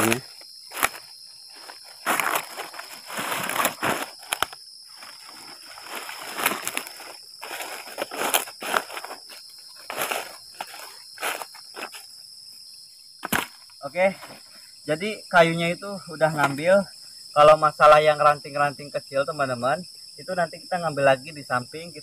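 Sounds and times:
footsteps crunching through dry leaves: 0.0 - 12.1
crickets droning: 0.0 - 22.0
firewood rustling and scraping: 0.7 - 12.0.

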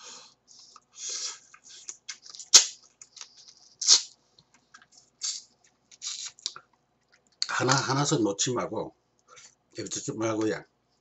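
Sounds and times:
crab legs crackling and slurping: 5.2 - 6.5.

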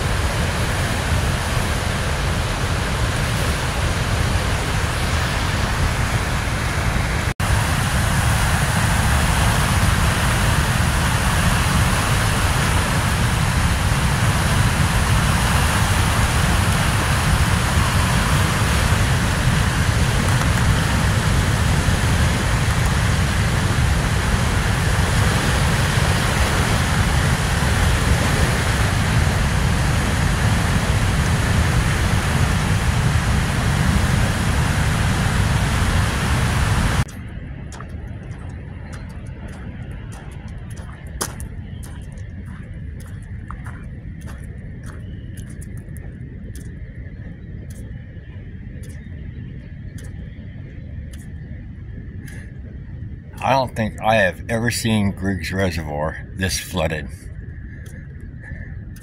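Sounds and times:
floodwater rushing: 0.0 - 45.6.

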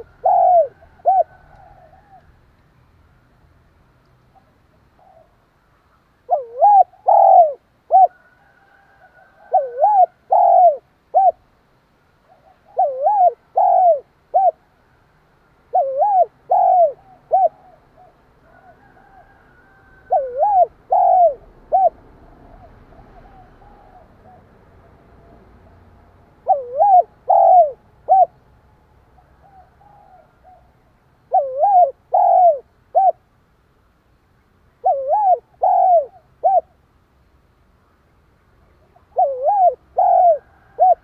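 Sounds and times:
dove cooing: 0.0 - 2.4, 4.3 - 5.4, 6.2 - 11.4, 12.2 - 14.7, 15.7 - 24.6, 26.4 - 28.4, 29.2 - 33.3, 34.8 - 36.8, 38.8 - 41.0.

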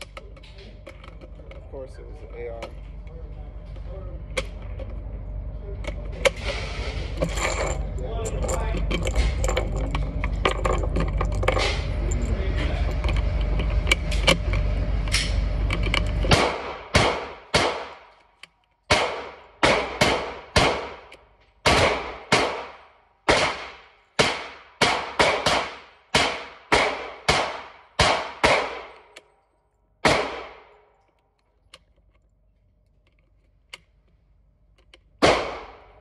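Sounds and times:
low rumble: 0.0 - 31.1
gunshots ringing indoors: 16.3 - 18.1, 18.9 - 29.1, 30.0 - 30.8, 35.2 - 36.0.

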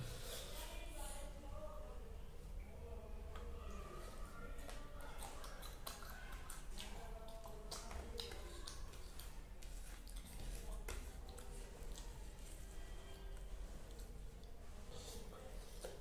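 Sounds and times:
chewing and wet mouth smacks: 4.6 - 12.6, 13.8 - 16.0.

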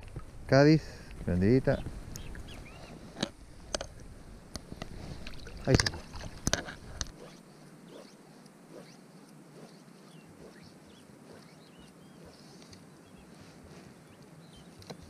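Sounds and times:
water splashing and sloshing: 4.8 - 7.4.

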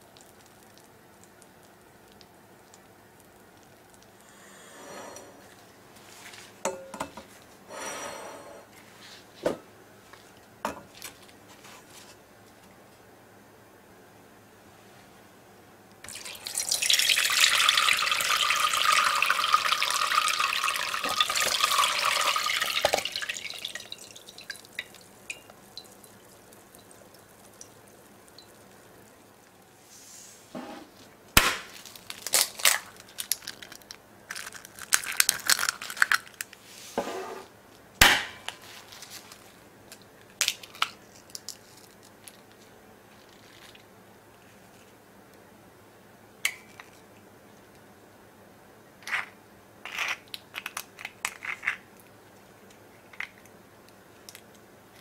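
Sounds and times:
liquid pouring through strainer: 16.1 - 29.5
dripping: 16.1 - 29.6.

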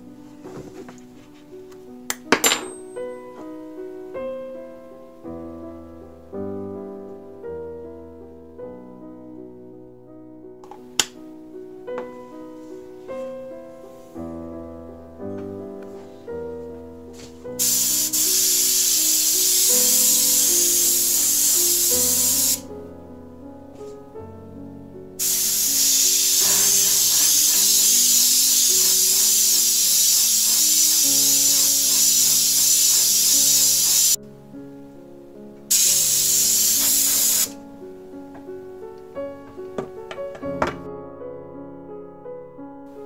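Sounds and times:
piano music: 0.0 - 43.0
airbrush spraying air hiss: 17.6 - 22.7, 25.2 - 34.2, 35.7 - 37.6.

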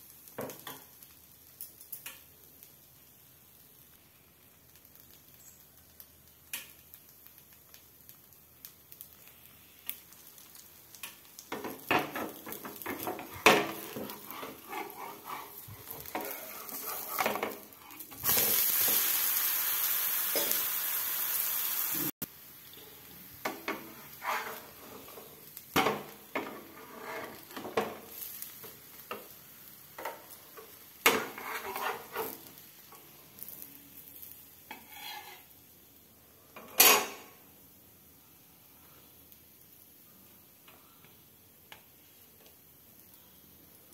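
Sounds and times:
loud sizzling: 10.9 - 29.5
metal spatula scraping frying pan: 11.5 - 19.0, 23.5 - 28.0, 31.1 - 32.5, 34.7 - 35.6.

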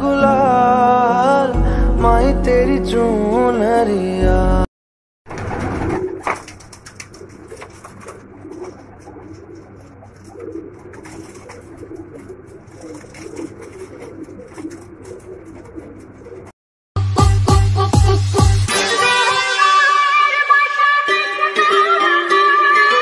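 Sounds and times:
noisy rustle: 5.3 - 16.5
pigeons cooing: 5.5 - 16.5.

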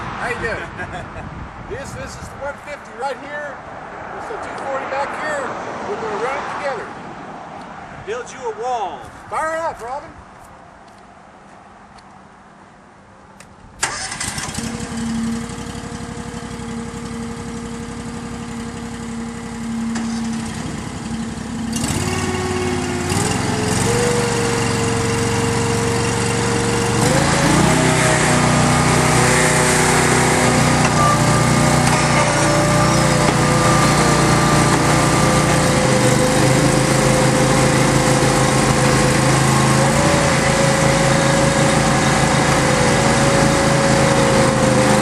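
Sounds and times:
small engines starting and running: 13.8 - 45.0.

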